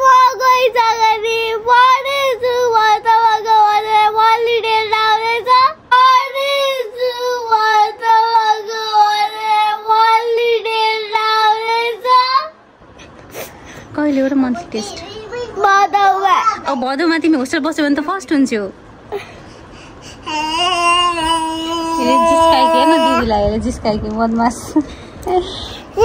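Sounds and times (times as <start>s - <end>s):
girl crying loudly: 20.3s - 23.2s.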